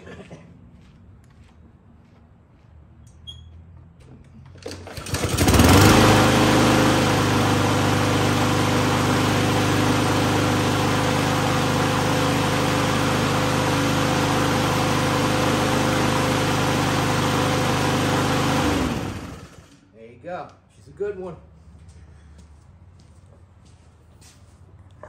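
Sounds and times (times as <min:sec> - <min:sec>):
lawn mower engine running: 0:04.4 - 0:19.9.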